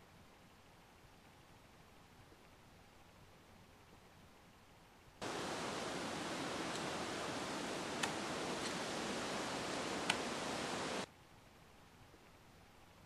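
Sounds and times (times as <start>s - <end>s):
steady rushing hiss: 5.2s - 11.1s.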